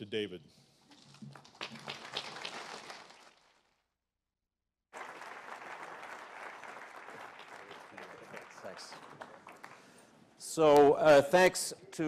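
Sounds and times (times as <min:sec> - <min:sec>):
audience applauding: 0:01.3 - 0:03.6, 0:05.0 - 0:10.0.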